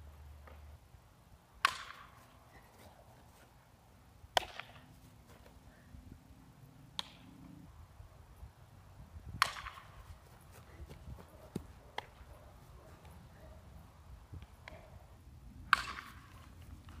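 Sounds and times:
softball being hit and caught: 1.6s - 2.2s, 4.3s - 4.8s, 9.3s - 10.0s, 15.7s - 17.0s.

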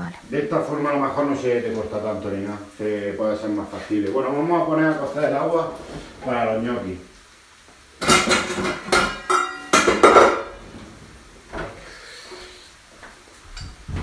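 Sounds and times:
metal pots and pans clanking: 8.0s - 10.6s.

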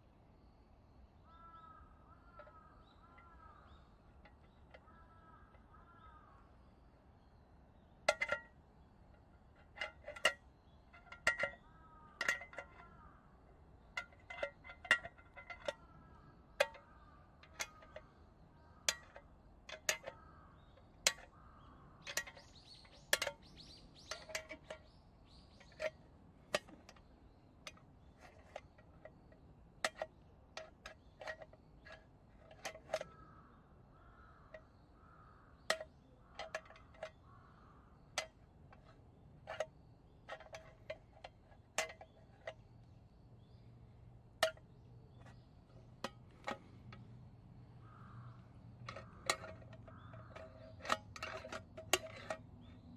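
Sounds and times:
metal handle clinking on tin: 8.1s - 13.0s, 13.8s - 18.2s, 18.8s - 33.2s, 35.6s - 37.3s, 38.1s - 42.7s, 44.4s - 47.1s, 48.1s - 52.9s.

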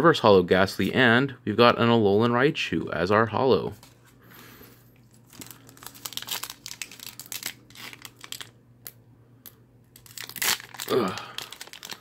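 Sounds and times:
foil wrapper crinkling: 5.0s - 8.6s, 9.9s - 12.0s.

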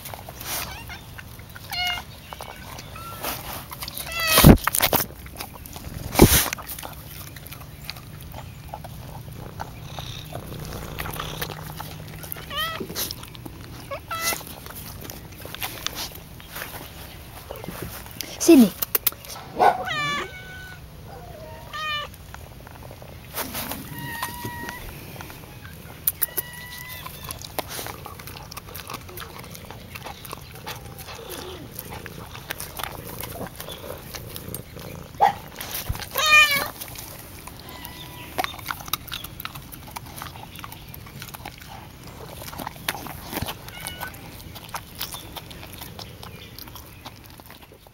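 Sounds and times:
cat meowing: 1.7s - 3.2s, 9.4s - 13.0s, 13.9s - 14.4s, 19.7s - 22.2s, 23.8s - 24.9s, 26.2s - 27.4s, 36.1s - 36.7s, 37.6s - 38.4s, 43.6s - 44.3s.

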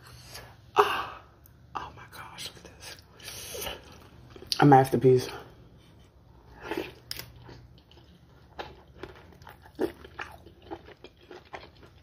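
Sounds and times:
crunchy chewing: 6.6s - 12.0s.

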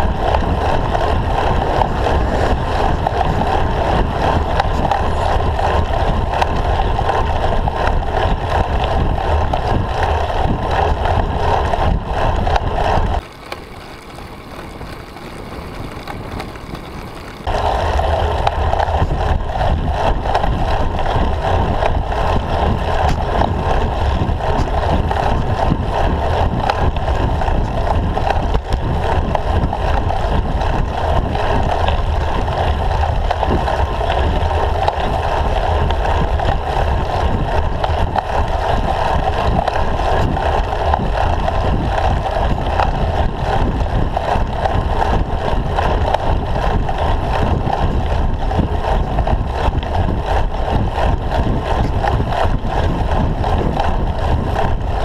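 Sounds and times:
bicycle road rumble: 0.0s - 55.0s
wind noise on microphone: 0.0s - 55.0s.

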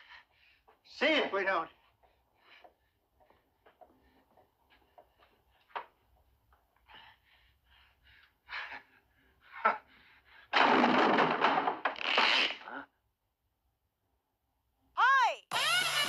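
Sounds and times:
harsh vocal outburst: 15.0s - 15.4s.

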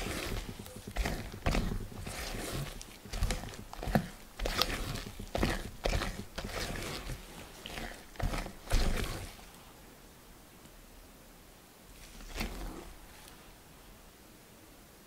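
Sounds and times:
spatula scraping batter in bowl: 0.0s - 9.6s, 12.1s - 13.4s.

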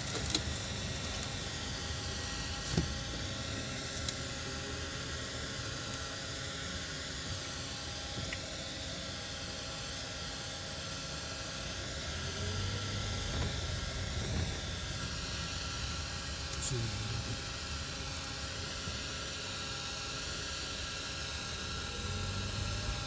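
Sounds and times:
vehicle road noise: 12.1s - 15.5s, 21.9s - 23.0s.

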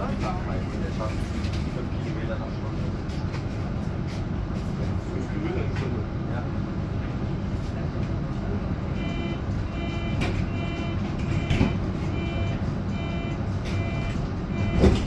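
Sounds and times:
tram hum and rumble: 0.0s - 15.0s
door warning beeps: 8.9s - 15.0s
thump: 14.8s - 15.0s.

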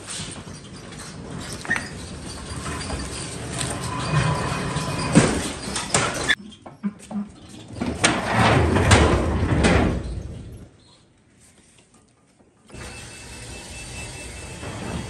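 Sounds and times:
pallet jack clanking: 0.0s - 6.4s
pallet jack rattling and rolling: 0.0s - 6.4s, 7.2s - 10.6s, 12.7s - 15.0s.

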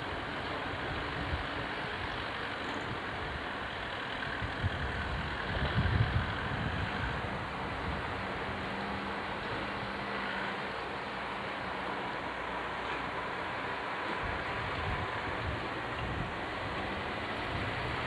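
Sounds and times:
tractor diesel engine running: 0.0s - 18.0s.

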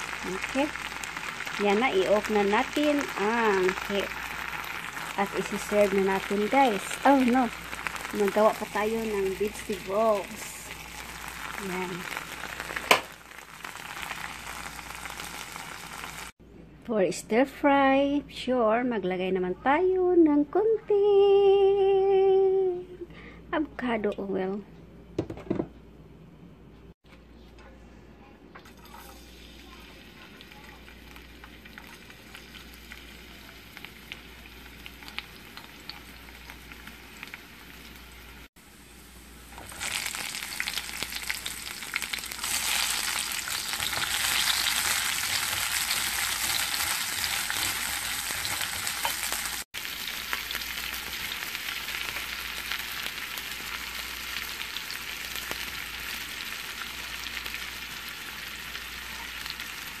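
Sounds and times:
food sizzling in frying pan: 0.0s - 16.4s, 28.7s - 60.0s.

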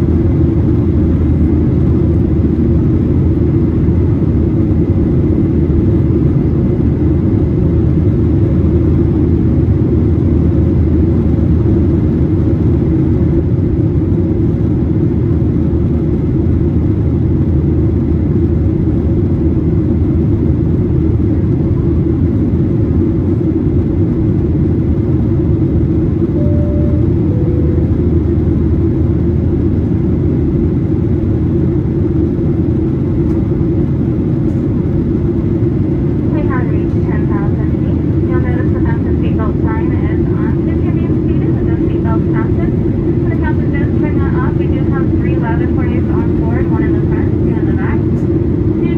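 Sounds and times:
airplane cabin engine drone: 0.0s - 48.9s
faint steady hum: 25.6s - 30.4s, 34.4s - 48.9s
two-note chime: 26.3s - 28.1s.

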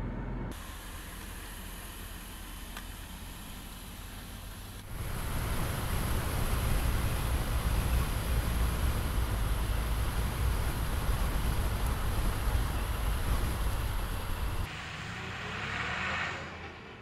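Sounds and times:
truck engine and tyres rumbling: 0.0s - 17.0s
quiet hiss: 0.6s - 14.7s.

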